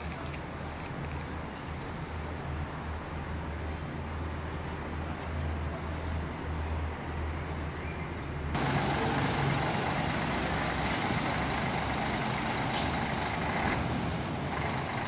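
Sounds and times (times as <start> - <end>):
street traffic: 0.0 - 15.0
coach diesel engine running: 8.6 - 15.0
air-brake hiss: 12.3 - 13.1, 13.7 - 14.3.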